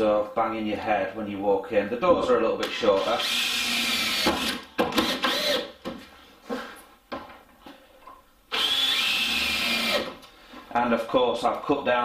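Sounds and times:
cordless drill whining: 0:03.0 - 0:05.7, 0:08.5 - 0:10.2.

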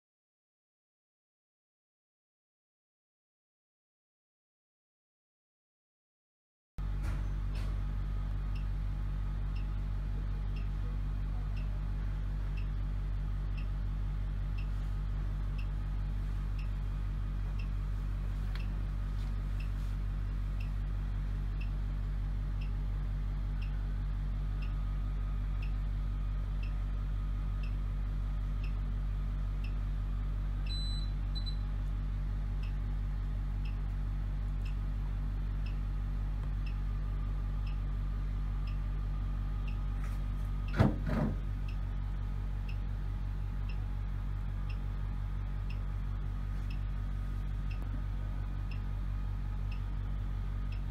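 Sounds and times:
steady low hum: 0:06.8 - 0:50.9
two-tone beep: 0:30.7 - 0:31.6.

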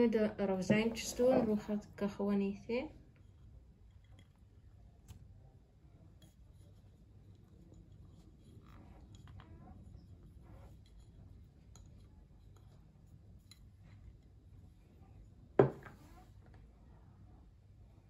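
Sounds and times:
sharp knock on hard surface: 0:15.6 - 0:16.0.

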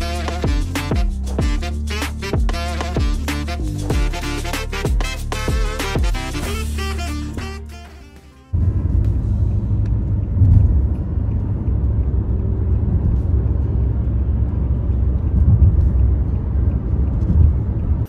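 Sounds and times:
car interior road rumble: 0:08.5 - 0:18.0.

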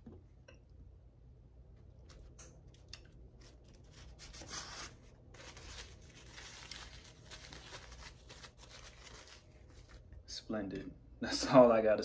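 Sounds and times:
paper napkin rustling: 0:03.4 - 0:10.0.

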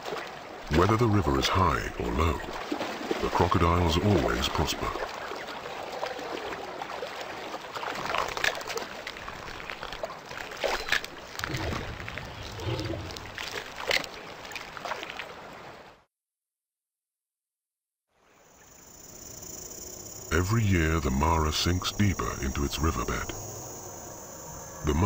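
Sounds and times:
water splashing and churning: 0:00.0 - 0:16.0.

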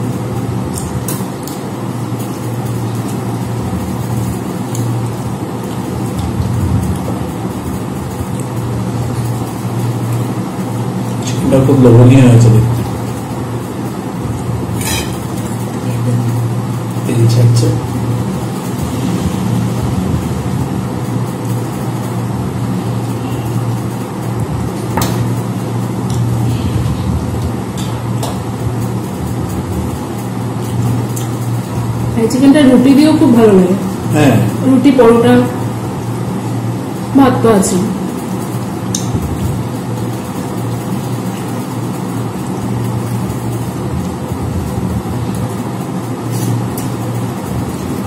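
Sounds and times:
low hum: 0:00.0 - 0:48.0
steel tableware clinking: 0:14.8 - 0:15.3
rushing noise: 0:17.9 - 0:24.7.

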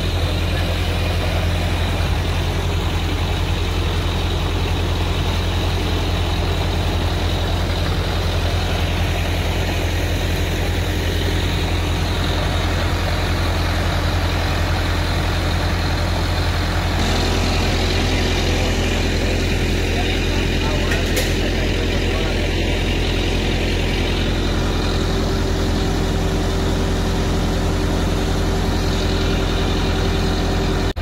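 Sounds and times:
diesel tractor engine droning: 0:00.0 - 0:31.0.

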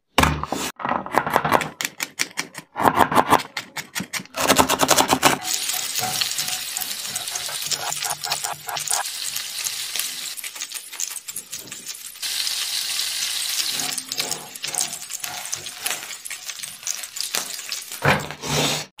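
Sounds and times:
spatula scraping in pan: 0:04.8 - 0:18.9
food sizzling in pan: 0:05.4 - 0:18.1.

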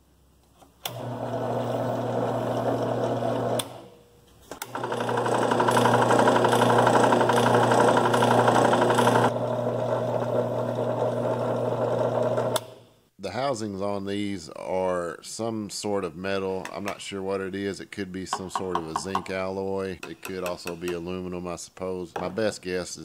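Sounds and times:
drill press motor hum: 0:00.8 - 0:04.0, 0:04.6 - 0:12.9.

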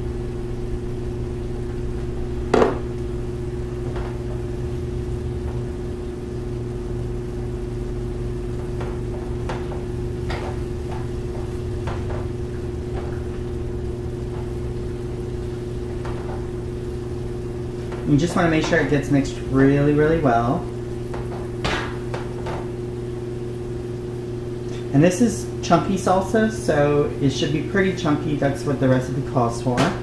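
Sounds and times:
steady hum: 0:00.0 - 0:30.0
spatula knocking on pan: 0:02.5 - 0:02.9, 0:08.6 - 0:13.4
spatula scraping and tapping: 0:08.6 - 0:13.2.

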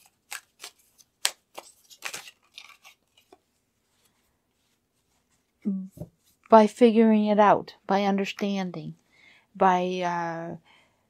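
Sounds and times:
cards shuffling: 0:00.0 - 0:03.4.

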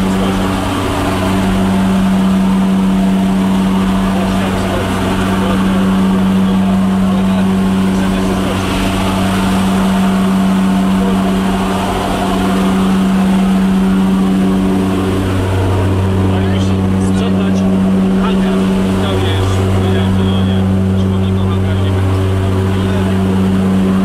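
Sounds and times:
airplane engine and propeller drone: 0:00.0 - 0:24.0.

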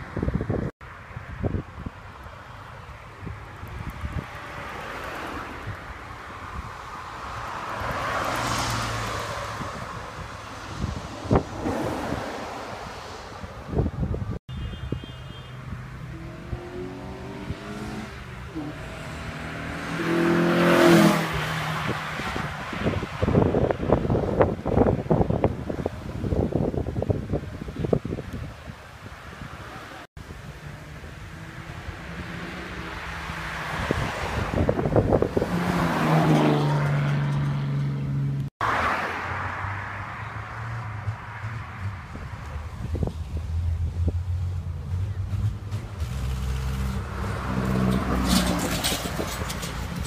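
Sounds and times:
wind buffeting microphone: 0:00.0 - 0:02.1, 0:03.0 - 0:04.8, 0:08.8 - 0:15.0, 0:15.6 - 0:30.5, 0:33.2 - 0:37.5, 0:40.8 - 0:46.2, 0:47.0 - 0:50.0
car accelerating past: 0:16.0 - 0:23.0.

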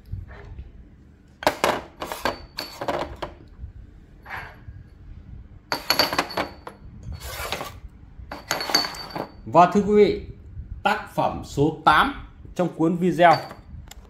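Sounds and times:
clay teapot lids clinking: 0:08.3 - 0:09.4, 0:13.2 - 0:13.6.

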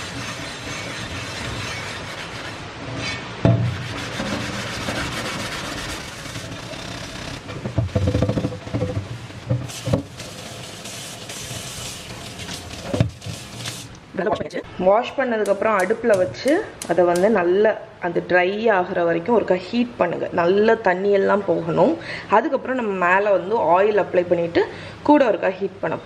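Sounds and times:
sponge scrubbing pan: 0:00.0 - 0:02.6, 0:03.7 - 0:06.8
knock: 0:03.4 - 0:03.8, 0:07.6 - 0:10.1
tap water running: 0:06.2 - 0:14.0.

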